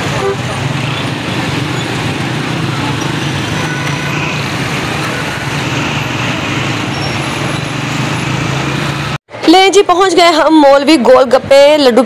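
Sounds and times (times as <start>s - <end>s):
motorcycle engine running: 0.0s - 9.2s
road noise from traffic: 0.0s - 12.0s.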